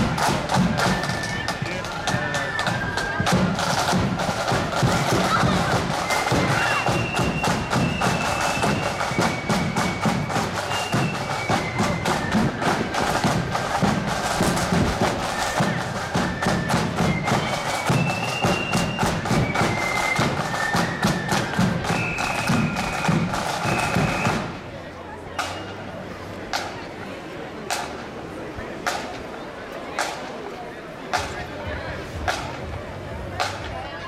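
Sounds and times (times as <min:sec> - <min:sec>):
rapid drumming: 0:00.0 - 0:24.6
marching band playing: 0:00.0 - 0:30.3.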